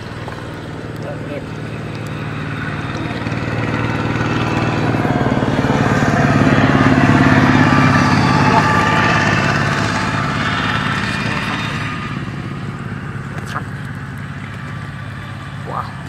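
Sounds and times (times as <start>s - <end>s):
passing vehicle engine: 0.0s - 16.0s.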